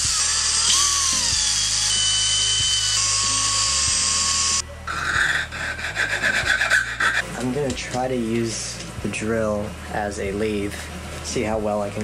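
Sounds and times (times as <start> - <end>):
power drill whining through wood: 0.0 - 5.9
background music: 0.0 - 12.0.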